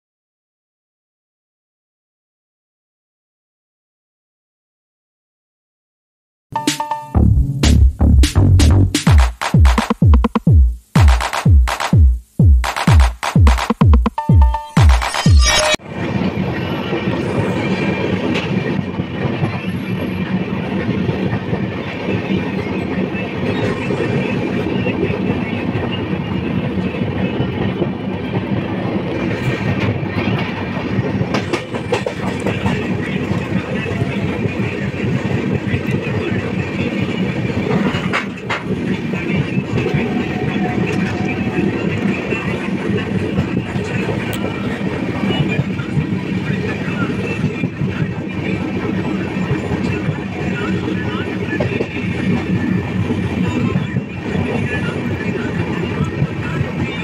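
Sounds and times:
train wheels rumbling on rails: 15.8s - 57.0s.

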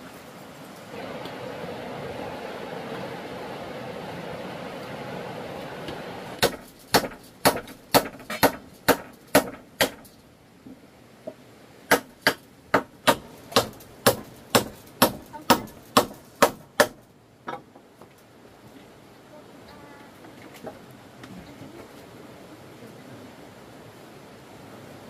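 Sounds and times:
steady rushing noise: 0.0s - 10.2s
hand tool striking wood: 6.4s - 10.2s, 11.9s - 17.8s.

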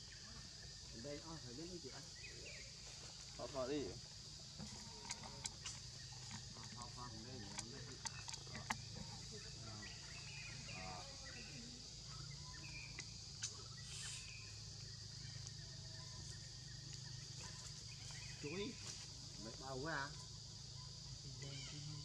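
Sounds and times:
high-pitched insect drone: 0.0s - 22.0s.

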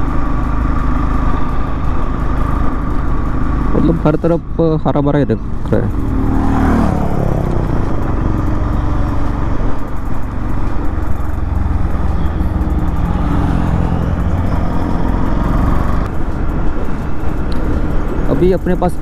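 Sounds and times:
motorcycle engine running: 0.0s - 19.0s
wind and road noise: 0.0s - 19.0s.

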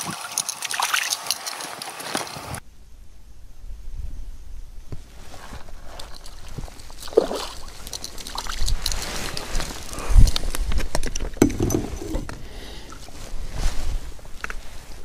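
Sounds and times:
fish splashing: 0.0s - 2.4s, 6.2s - 10.0s
dull thump: 11.4s - 12.3s.

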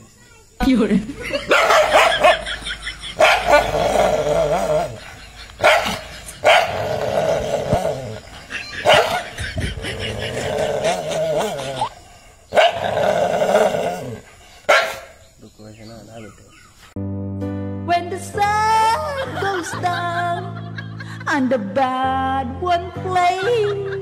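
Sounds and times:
dog barking and growling: 1.2s - 15.2s.

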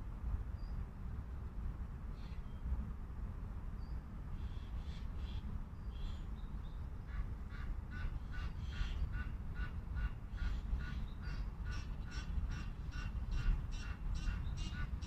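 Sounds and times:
waterfowl calling: 7.1s - 15.0s.

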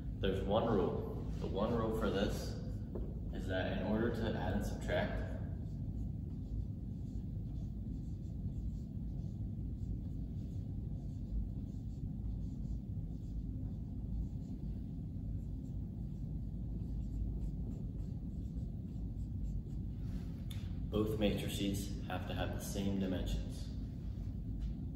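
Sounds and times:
steady low rumble: 0.0s - 24.9s
marker writing on whiteboard: 0.2s - 24.9s.

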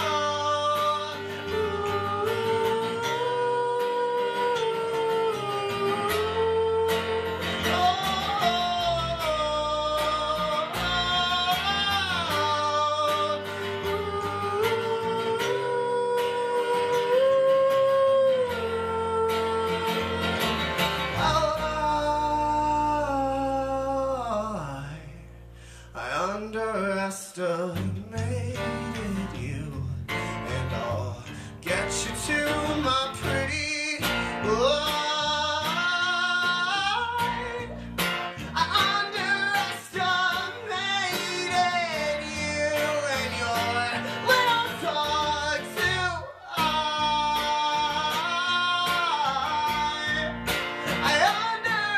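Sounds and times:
electric bass guitar: 0.0s - 25.9s, 27.8s - 51.9s
acoustic guitar: 0.0s - 51.9s
man singing wordless melody: 0.0s - 51.9s.

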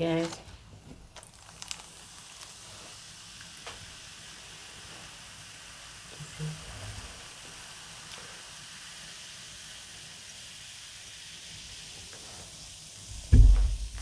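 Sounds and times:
soda fizzing: 0.0s - 14.0s
loud low thump: 13.2s - 14.0s.

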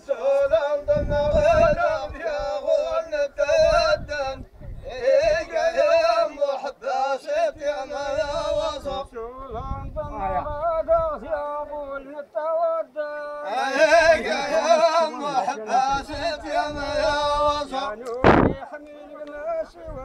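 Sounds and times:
man singing: 0.0s - 20.0s
frame drum thumps: 18.2s - 18.6s.

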